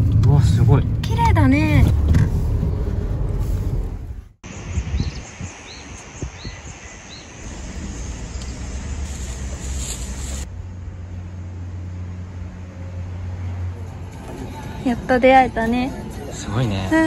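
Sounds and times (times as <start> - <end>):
car cabin low rumble: 0.0 - 4.3, 7.4 - 11.8
light wind: 0.0 - 17.0.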